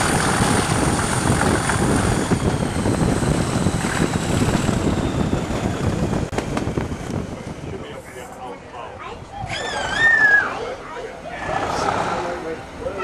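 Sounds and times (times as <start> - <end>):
rushing air: 0.0 - 8.4
train wheel noise: 0.0 - 8.4
diesel locomotive rumbling: 0.0 - 10.1, 10.8 - 13.0.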